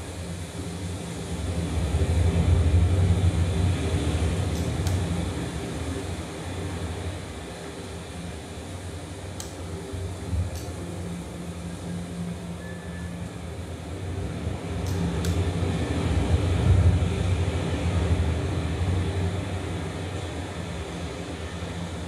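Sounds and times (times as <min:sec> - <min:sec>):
low rumbling drone: 0:00.0 - 0:22.0
faint short clicks: 0:10.5 - 0:10.8.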